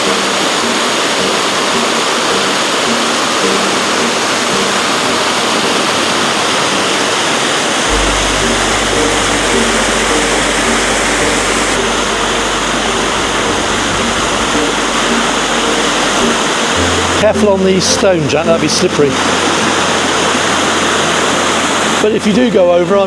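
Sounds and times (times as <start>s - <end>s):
background music: 0.0s - 23.0s
waterfall rushing: 0.0s - 23.0s
low bass note: 7.9s - 22.0s.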